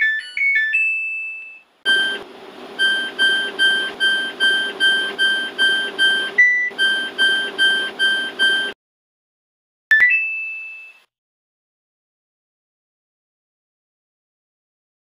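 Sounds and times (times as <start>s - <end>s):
electronic beep melody: 0.0s - 8.8s
short identical beeps: 1.2s - 2.2s, 2.8s - 8.8s.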